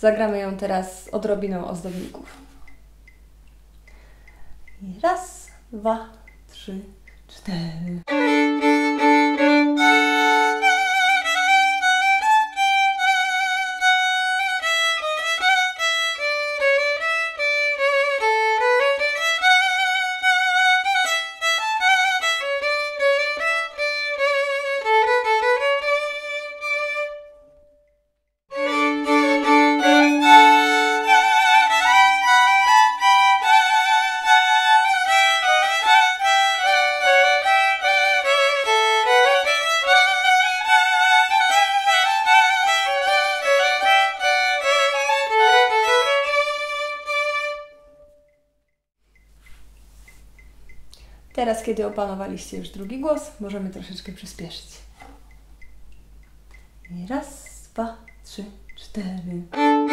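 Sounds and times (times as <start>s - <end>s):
solo violin: 8.0s - 27.7s, 28.5s - 48.3s, 59.5s - 59.9s.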